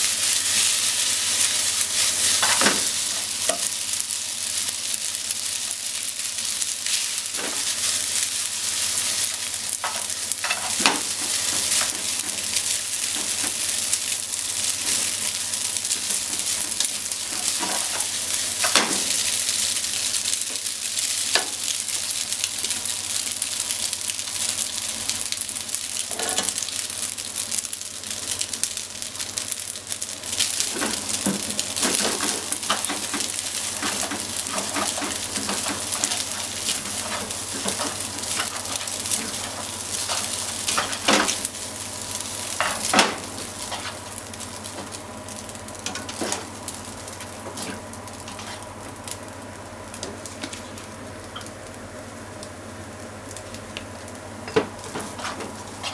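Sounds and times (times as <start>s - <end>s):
food sizzling in a frying pan: 0.0s - 55.9s
tongs clicking and scraping in pan: 9.2s - 13.7s, 16.0s - 18.8s, 30.7s - 41.4s, 42.6s - 44.1s, 47.2s - 48.6s, 54.5s - 55.9s.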